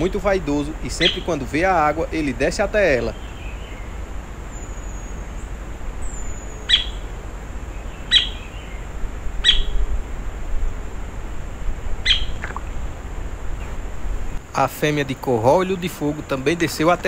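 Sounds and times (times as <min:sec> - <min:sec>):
bird calling: 0:00.0 - 0:10.0, 0:12.0 - 0:12.9.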